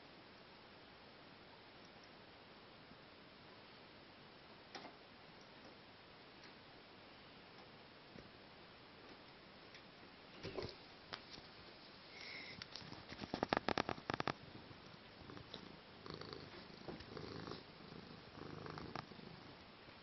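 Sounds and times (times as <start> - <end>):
cat purring: 12.0 - 19.6.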